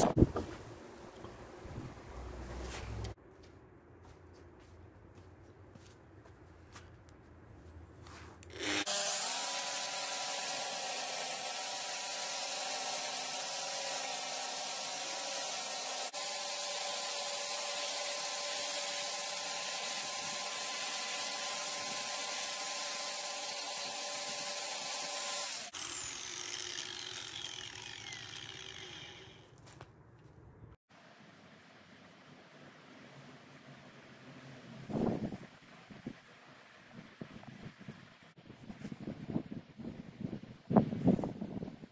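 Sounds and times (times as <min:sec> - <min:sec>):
grinder polishing wheel whine: 0:08.5 - 0:09.5, 0:25.0 - 0:29.6.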